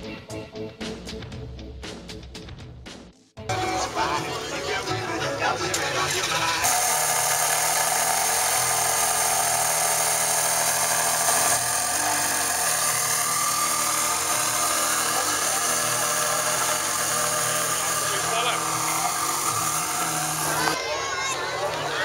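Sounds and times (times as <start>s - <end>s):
car engine idling: 3.5s - 20.8s.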